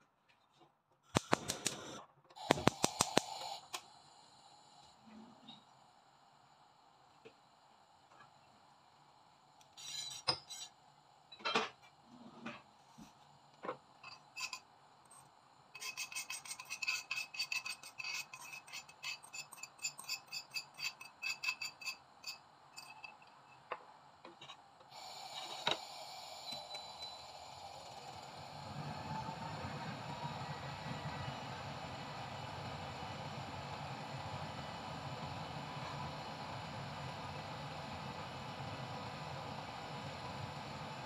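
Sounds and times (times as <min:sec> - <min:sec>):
steady hiss: 0:01.2 - 0:17.6, 0:24.0 - 0:41.0
utensil scraping bowl: 0:15.8 - 0:23.3.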